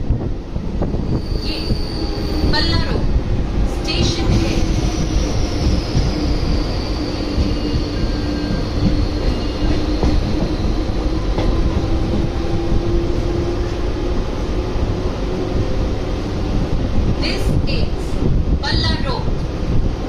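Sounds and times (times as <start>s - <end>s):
train wheels rumbling on track: 0.0s - 20.0s.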